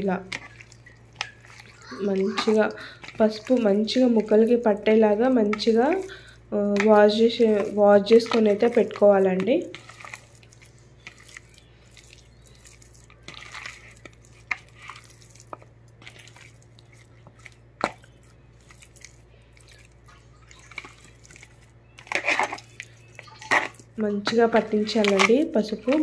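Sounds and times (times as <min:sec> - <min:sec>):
faint steady hum: 0:00.0 - 0:26.0
wet squelches of chicken: 0:00.3 - 0:04.4, 0:09.7 - 0:21.8.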